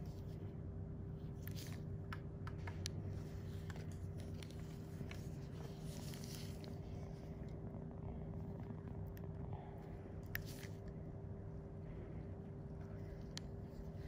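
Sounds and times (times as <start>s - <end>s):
steady low hum: 0.0s - 14.0s
small irregular clicks: 1.3s - 7.7s, 8.4s - 11.0s, 12.7s - 14.0s.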